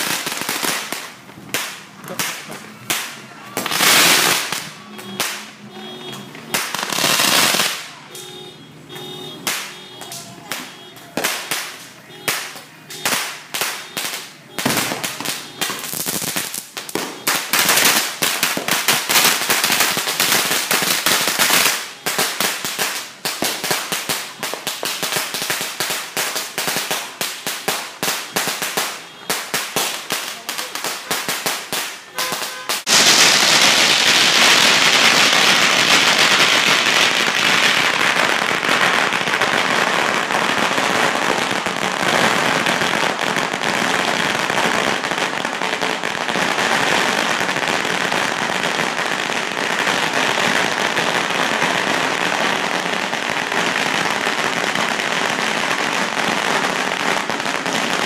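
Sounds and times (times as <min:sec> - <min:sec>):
firecrackers banging: 0:00.0 - 0:58.0.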